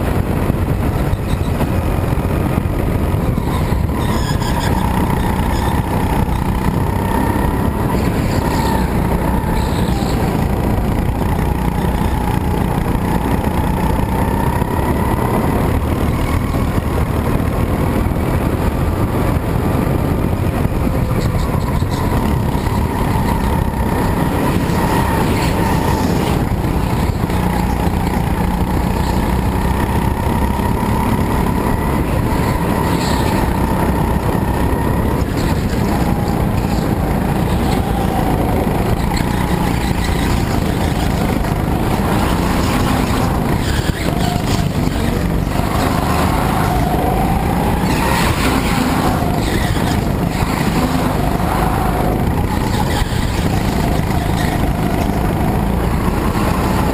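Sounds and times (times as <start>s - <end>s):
go-kart engine running: 0.0s - 56.9s.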